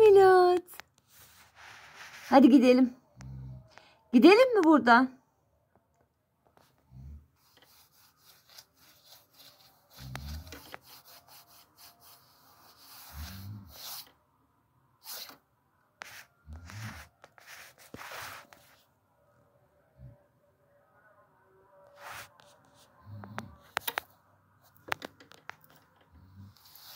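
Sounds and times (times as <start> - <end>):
scratchy rubbing and rustling: 1.0 - 2.8, 7.4 - 14.1, 16.0 - 18.9, 22.0 - 26.9.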